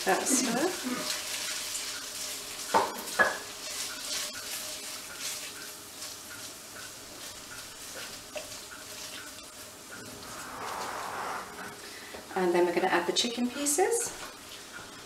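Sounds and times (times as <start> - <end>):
paste sizzling in a pan: 0.0 - 10.9
spatula knocking on a pan: 2.7 - 3.5.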